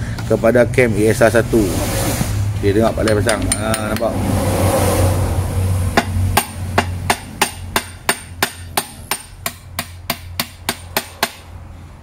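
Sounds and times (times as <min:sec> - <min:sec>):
hammer striking metal: 0:03.0 - 0:04.2, 0:06.0 - 0:11.5.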